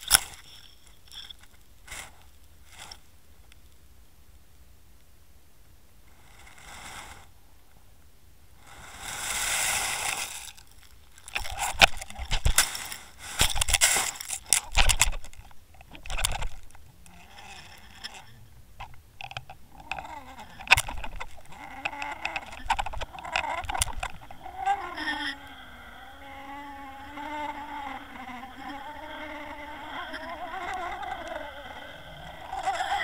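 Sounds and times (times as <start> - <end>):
quiet rattles: 9.6 - 33.0
knocks and scrapes on gravel: 9.8 - 24.5
wavering hum: 11.2 - 33.0.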